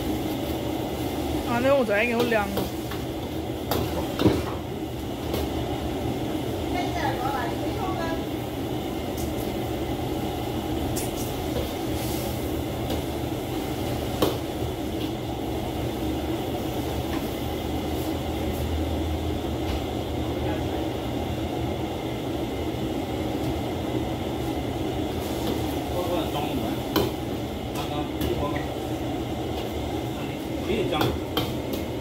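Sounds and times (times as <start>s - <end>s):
greens sizzling in a wok: 0.0s - 18.9s, 24.4s - 27.7s
gas burner roaring: 0.0s - 32.0s.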